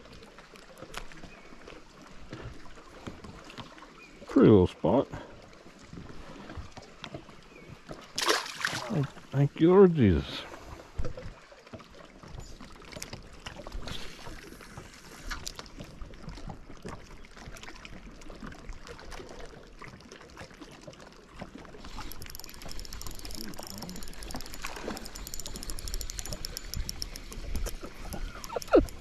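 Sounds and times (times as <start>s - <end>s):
water lapping against boat: 0.0s - 29.0s
fishing reel ticking: 21.8s - 29.0s.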